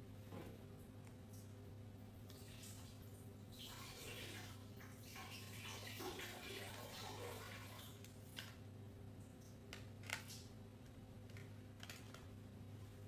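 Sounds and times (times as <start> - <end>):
steady low hum: 7.1 - 13.0.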